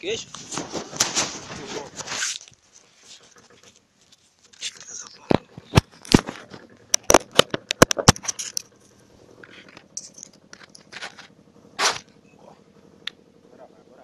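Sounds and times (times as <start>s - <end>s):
sharp clicks and knocks: 3.2s - 8.8s, 9.4s - 12.1s.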